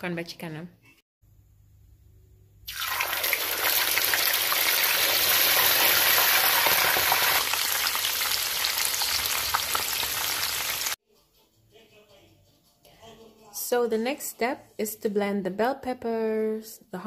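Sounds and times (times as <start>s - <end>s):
hot oil sizzling and crackling: 2.7s - 11.0s.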